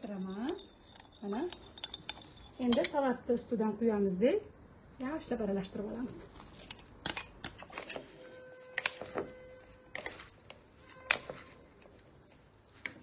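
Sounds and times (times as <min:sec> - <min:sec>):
salad leaves rustling: 0:07.9 - 0:13.0.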